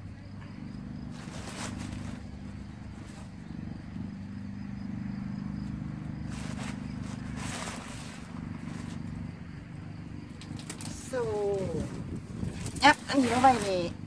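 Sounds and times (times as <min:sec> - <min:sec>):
low motor drone: 0:00.0 - 0:12.6
gloved hands rustling soil: 0:01.1 - 0:03.4, 0:06.1 - 0:09.1, 0:10.4 - 0:14.0.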